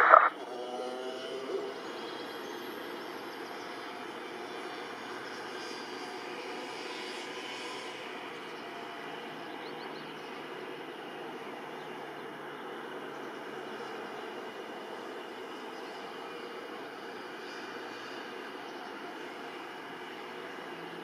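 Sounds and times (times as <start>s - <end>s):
distant airliner engine noise: 0.0s - 21.0s.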